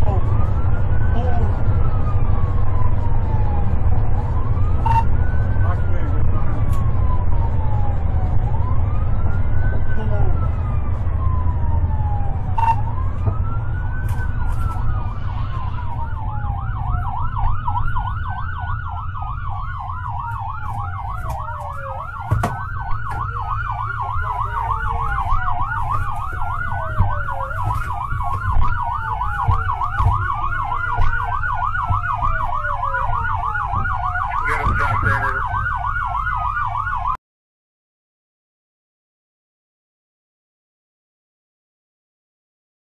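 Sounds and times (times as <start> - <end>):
police siren wailing: 0.0 - 37.2
police siren yelping: 0.0 - 37.2.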